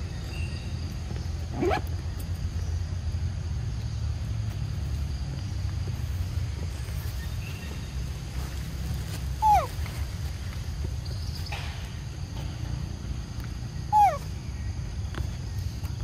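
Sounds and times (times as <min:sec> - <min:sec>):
macaque whimpering call: 0:09.4 - 0:09.7, 0:13.9 - 0:14.3.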